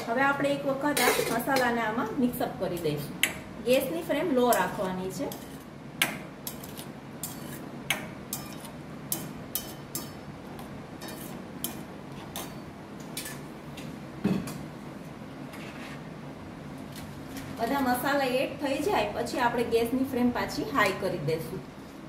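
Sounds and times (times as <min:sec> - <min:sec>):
spoon clinking against pot: 0:08.3 - 0:10.2.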